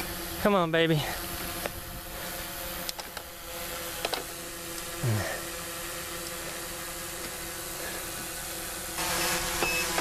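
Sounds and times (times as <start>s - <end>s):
short low vocal sound: 5.0s - 5.4s.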